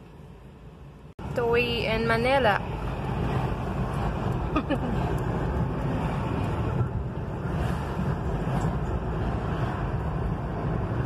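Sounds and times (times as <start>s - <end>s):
tyre and engine rumble in car: 2.2s - 11.0s.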